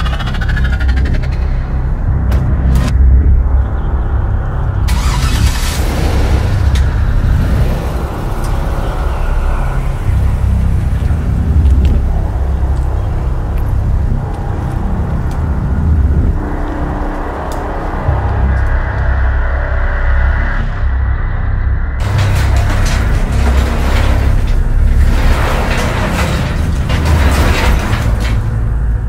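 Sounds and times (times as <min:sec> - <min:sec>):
engine starting and driving away: 0:04.7 - 0:17.2, 0:22.0 - 0:29.0.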